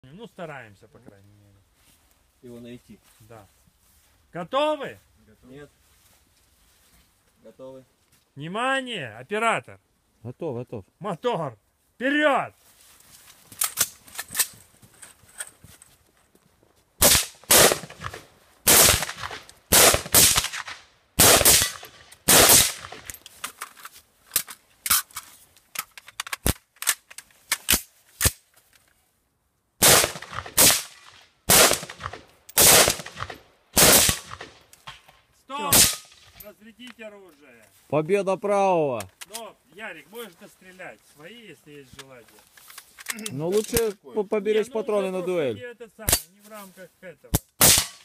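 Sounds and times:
gunshots with echo: 0:17.0 - 0:23.0, 0:29.8 - 0:30.9, 0:31.5 - 0:34.5, 0:35.7 - 0:36.2.

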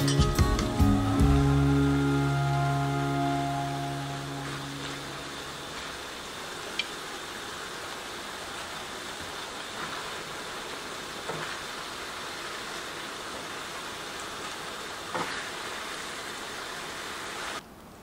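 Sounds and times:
food sizzling in a frying pan: 0:04.0 - 0:17.6.

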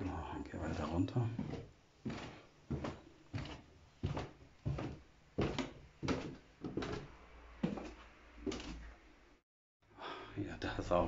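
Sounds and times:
footsteps on stairs: 0:00.6 - 0:08.9.

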